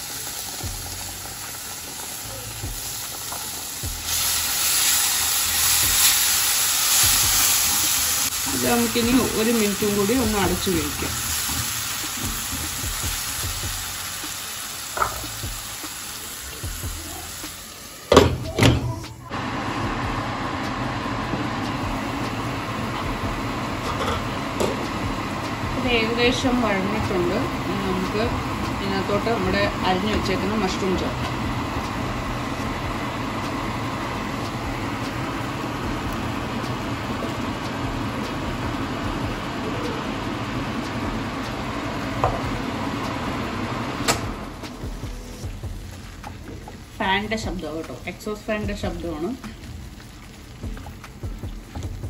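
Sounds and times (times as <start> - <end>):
kitchen exhaust fan running: 0.0 - 52.0
masala sizzling in a pan: 0.0 - 52.0
glass lid knocking on pan: 15.0 - 15.3.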